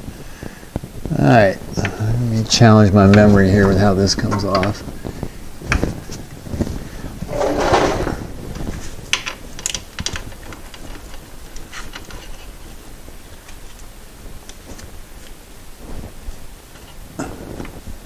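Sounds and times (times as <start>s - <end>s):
metal scrape: 7.3s - 8.3s
clicks and knocks of metal parts: 9.1s - 12.5s.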